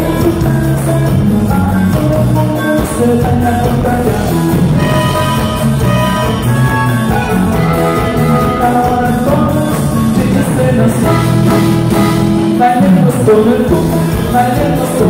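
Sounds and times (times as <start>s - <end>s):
live band music: 0.0s - 15.0s.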